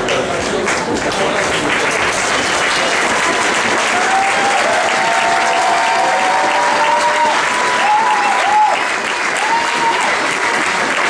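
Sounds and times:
crowd applauding: 0.0 - 11.0.

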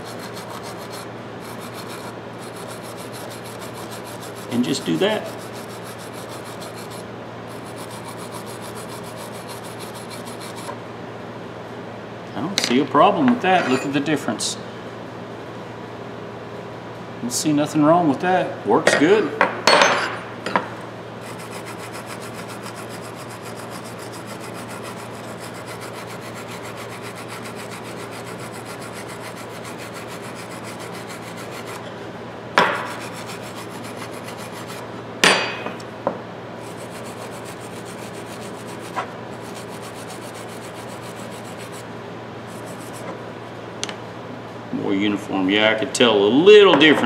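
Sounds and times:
wire brush scrubbing metal: 0.0 - 10.7, 21.2 - 31.8, 32.8 - 34.9, 36.6 - 41.9, 42.5 - 43.1.

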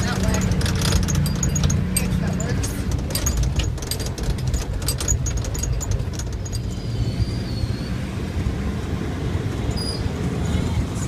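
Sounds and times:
vehicle body rattling: 0.0 - 8.0
engine and road rumble: 0.0 - 11.0.

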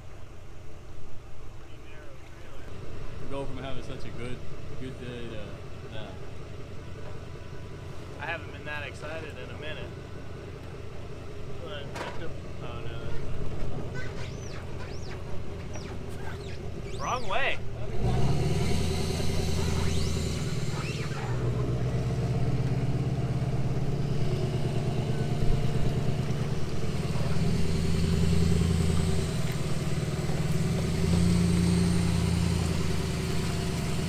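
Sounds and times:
outboard motor running: 12.6 - 17.9, 19.0 - 33.0.

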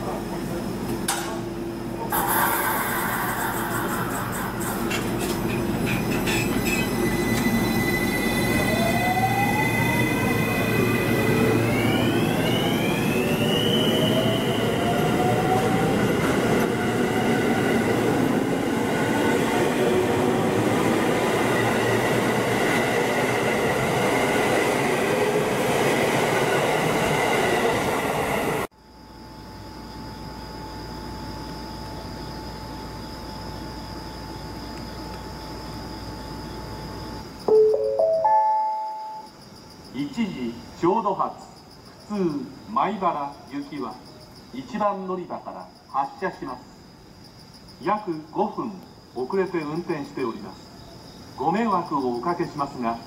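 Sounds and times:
electric train motor whine: 6.6 - 18.7.

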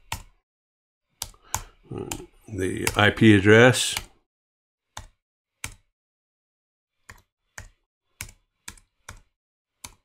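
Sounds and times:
computer keyboard keystrokes: 0.0 - 0.4, 1.2 - 3.1, 7.0 - 10.0.

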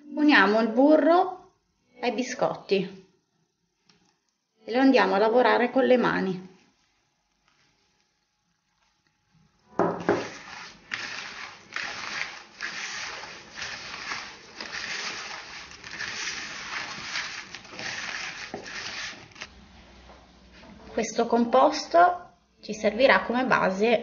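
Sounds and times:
knocks on bowl: 9.8 - 10.2
crumbs scraping in ceramic bowl: 10.0 - 19.5.

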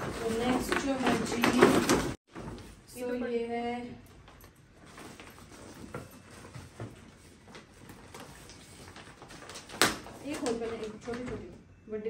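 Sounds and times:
gift wrap and plastic crinkling: 4.2 - 11.4.

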